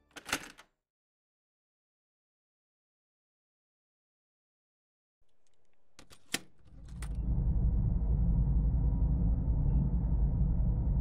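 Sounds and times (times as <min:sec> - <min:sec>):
low machinery rumble: 0:05.3 - 0:11.0.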